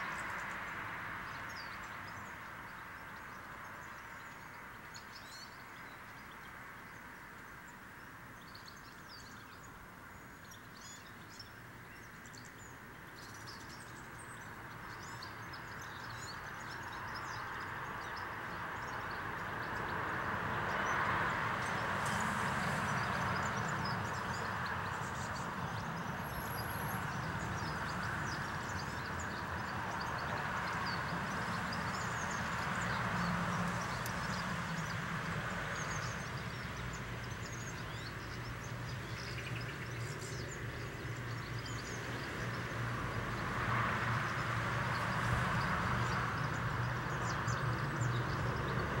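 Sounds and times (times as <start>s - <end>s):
small birds chirping: 0.0s - 49.0s.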